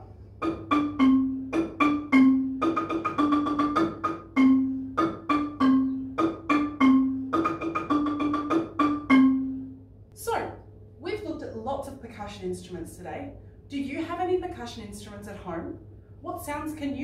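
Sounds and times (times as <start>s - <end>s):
marimba tune: 0.4s - 9.8s.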